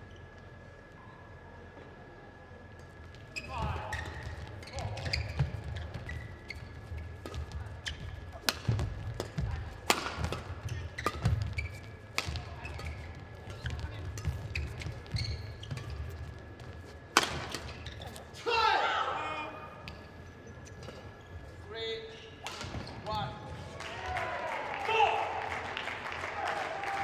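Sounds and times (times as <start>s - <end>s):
shoe squeaks: 3.3s - 7.2s, 7.8s - 8.4s, 10.6s - 16.6s, 17.6s - 18.4s, 19.9s - 23.0s
racket striking shuttlecock: 8.4s - 11.5s, 12.1s - 14.5s, 17.1s - 17.8s.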